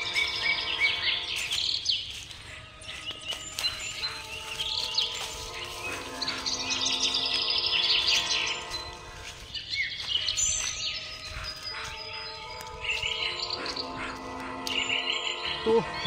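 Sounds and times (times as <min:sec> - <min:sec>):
birds chirping and twittering: 0:00.0 - 0:16.0
soft held chords music: 0:03.4 - 0:09.6, 0:10.7 - 0:16.0.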